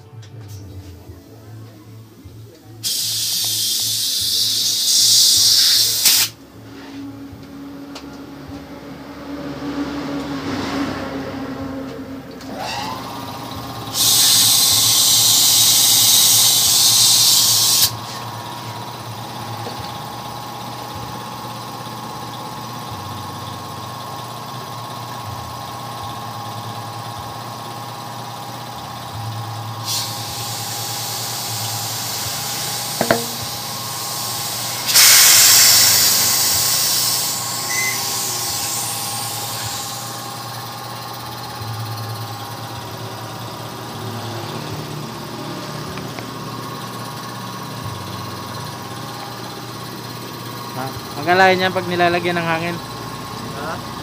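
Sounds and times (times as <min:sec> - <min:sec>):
compressed air hissing from hose: 0:02.8 - 0:06.4, 0:13.9 - 0:18.2, 0:29.8 - 0:40.2
steady machine hum: 0:12.9 - 0:54.0.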